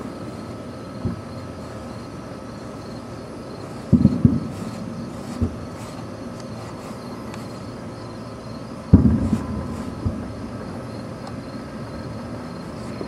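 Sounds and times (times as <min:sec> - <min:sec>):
crickets chirping: 0:00.0 - 0:13.0
distant firework boom: 0:03.9 - 0:04.7, 0:08.9 - 0:10.8.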